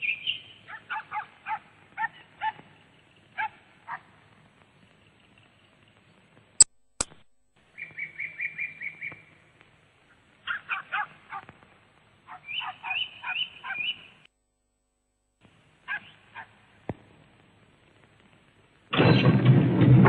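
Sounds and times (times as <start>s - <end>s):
high-pitched animal calls: 12.3s - 14.1s.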